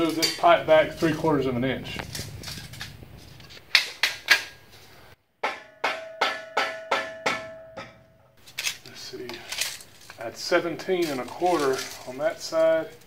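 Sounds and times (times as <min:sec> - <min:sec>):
mallet knocking metal pipe: 0:05.4 - 0:08.1
metal pipe ringing: 0:05.4 - 0:08.4.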